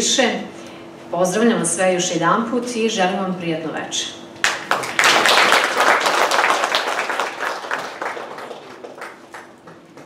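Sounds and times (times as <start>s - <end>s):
audience applauding: 4.4s - 10.0s.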